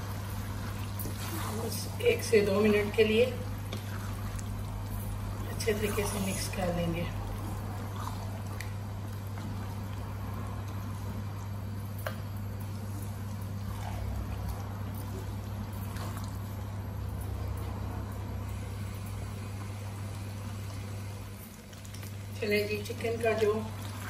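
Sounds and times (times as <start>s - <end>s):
steady low hum: 0.0s - 24.0s
thick sauce simmering: 0.0s - 24.0s
wooden spatula stirring: 0.1s - 11.4s.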